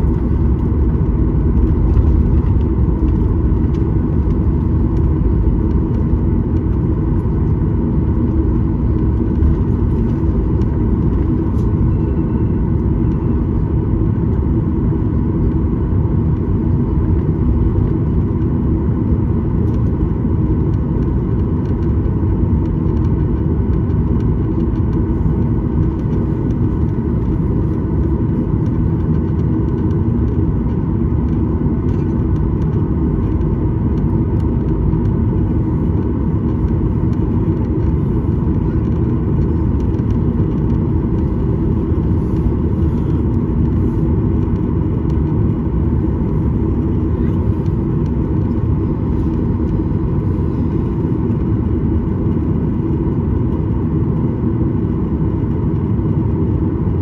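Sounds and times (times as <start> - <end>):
jet engines rumbling in cabin: 0.0 - 57.0.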